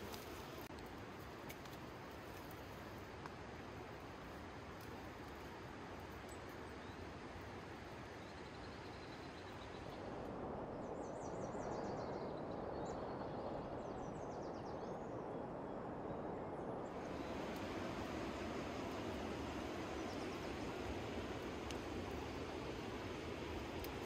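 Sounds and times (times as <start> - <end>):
steady rushing noise: 16.7 - 24.0.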